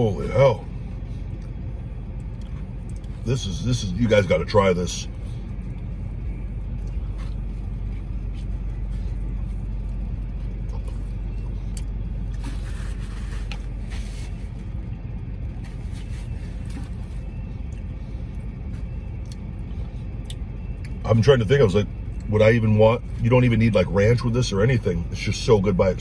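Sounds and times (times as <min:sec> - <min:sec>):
car engine idling: 0:00.0 - 0:26.0
chewing and mouth sounds: 0:01.2 - 0:03.3, 0:05.1 - 0:14.0, 0:16.3 - 0:21.0.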